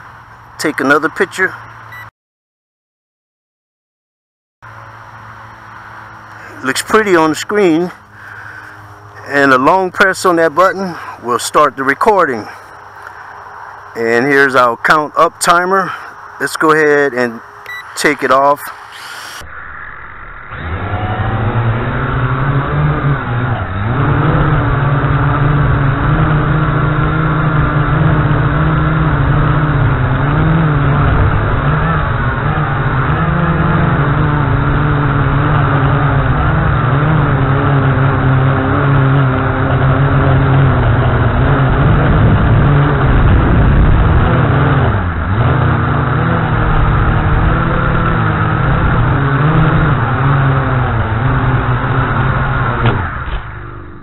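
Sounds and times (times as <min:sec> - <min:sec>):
quadcopter motors whining: 0:16.1 - 0:24.5
wind rumble on microphone: 0:39.4 - 0:54.0.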